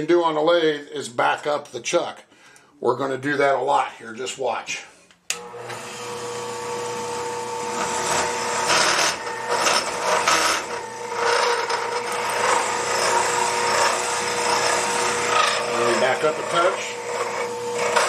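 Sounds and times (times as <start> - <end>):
lathe motor whine: 5.3 - 18.0
drill bit scraping wood: 5.4 - 18.0.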